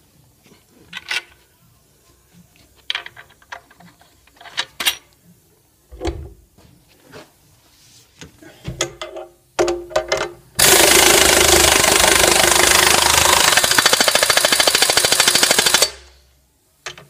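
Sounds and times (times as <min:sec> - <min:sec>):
impact wrench rattling: 0:09.9 - 0:16.0.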